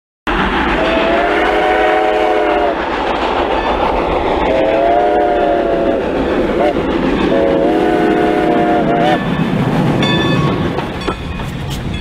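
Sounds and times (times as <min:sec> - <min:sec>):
passing train rumble: 0:00.3 - 0:12.0
locomotive air horn blasts: 0:00.8 - 0:02.8, 0:04.5 - 0:06.0, 0:06.6 - 0:09.2.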